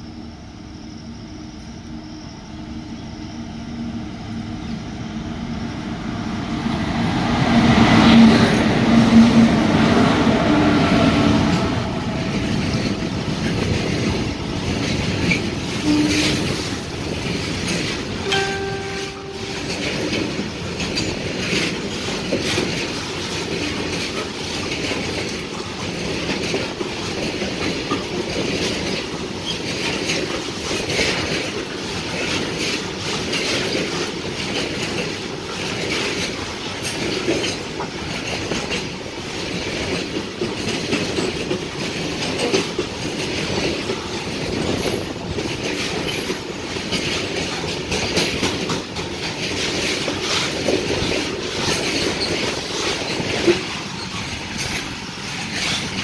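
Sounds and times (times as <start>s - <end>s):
train wheels clattering over joints: 10.9s - 15.9s, 19.8s - 56.0s.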